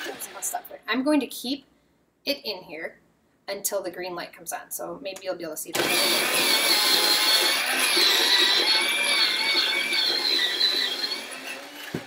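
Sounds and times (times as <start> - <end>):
electric pencil sharpener grinding: 0.0 - 0.6, 5.8 - 12.0.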